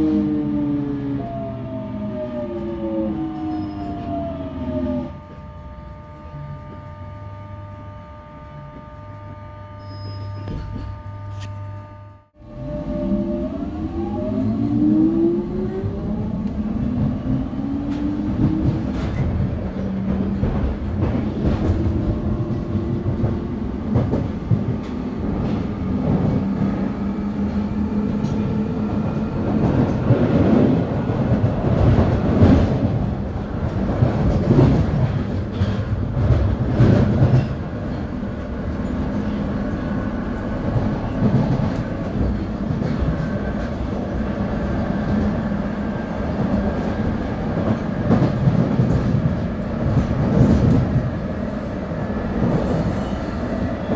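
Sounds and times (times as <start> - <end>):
rail rumble: 0.0 - 53.9
train traction motor whine: 0.9 - 14.9.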